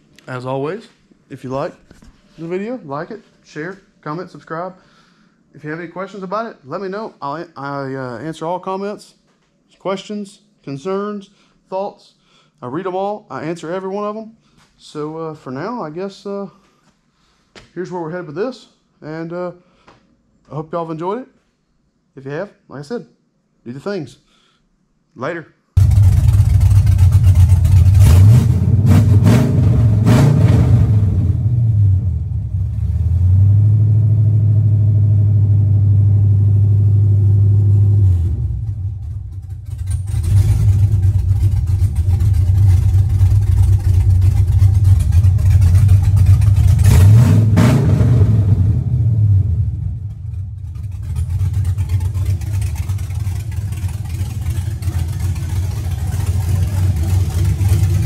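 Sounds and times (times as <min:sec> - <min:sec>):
engine idling and revving: 0:25.8 - 0:58.0.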